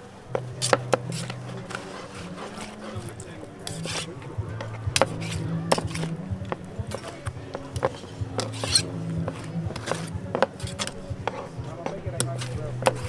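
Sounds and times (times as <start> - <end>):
low steady hum: 0.0 - 13.0
kitchen utensils clinking: 6.8 - 13.0.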